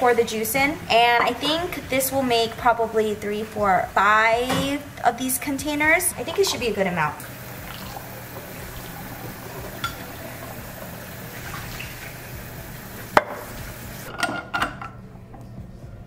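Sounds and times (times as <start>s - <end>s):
juice pouring into bottle: 7.2s - 14.1s
glass clinking: 8.7s - 10.6s.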